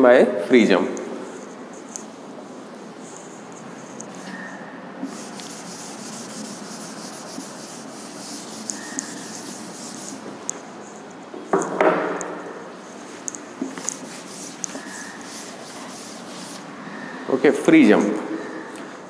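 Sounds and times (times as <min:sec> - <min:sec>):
duster wiping blackboard: 0:02.9 - 0:04.4, 0:05.0 - 0:10.4, 0:12.8 - 0:16.8.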